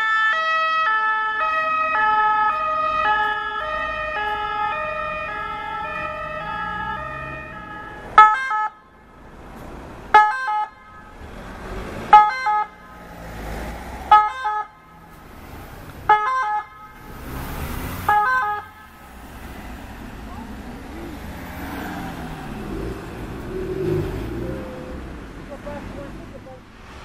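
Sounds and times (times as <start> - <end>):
loud two-note siren blasts: 0.0 - 8.7
ambulance two-tone siren: 0.0 - 9.2, 10.1 - 11.4, 12.1 - 13.3, 14.1 - 25.0.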